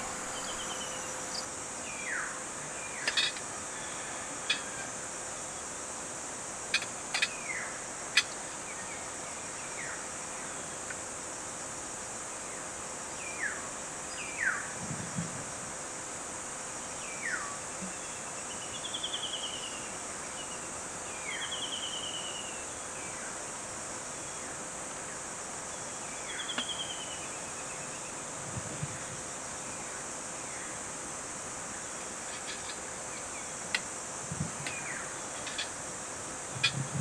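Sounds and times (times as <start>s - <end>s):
birds calling: 0.0s - 1.5s
insects droning: 0.0s - 37.0s.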